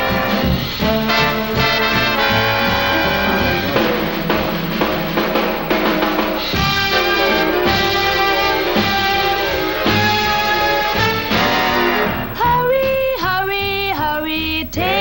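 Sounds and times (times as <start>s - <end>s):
brass section playing: 0.0s - 12.7s
drum kit: 0.0s - 13.4s.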